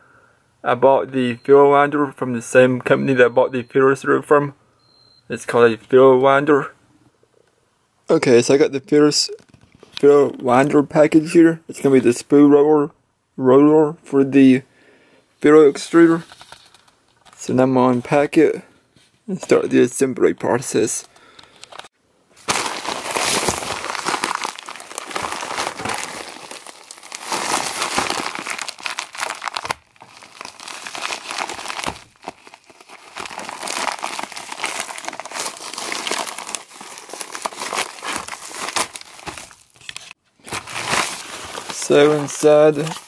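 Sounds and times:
envelope being torn and crinkled: 22.4s - 43.0s.

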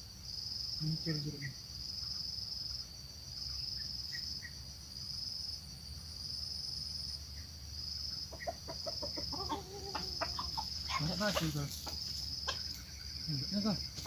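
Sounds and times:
insects trilling: 0.0s - 14.0s
junglefowl clucking: 8.1s - 13.0s.

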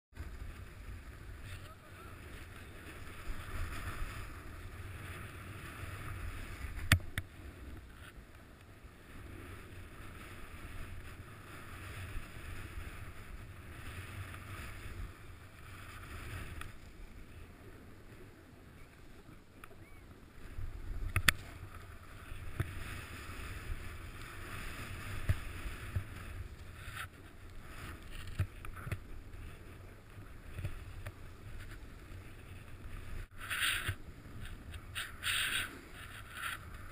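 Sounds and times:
wind rumble on microphone: 0.2s - 36.9s
snow hissing under skis: 2.0s - 6.8s, 9.2s - 17.0s, 21.6s - 27.0s, 31.2s - 36.9s.

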